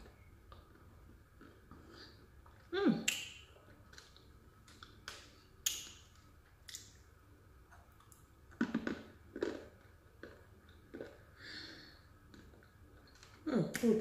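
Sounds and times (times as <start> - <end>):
clay being chewed crunching: 7.7 - 11.4.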